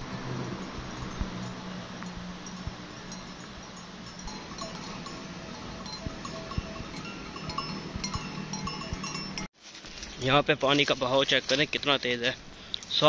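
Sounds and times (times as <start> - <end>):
cattle bells clinking: 0.0 - 9.5
low steady hum: 0.0 - 9.5.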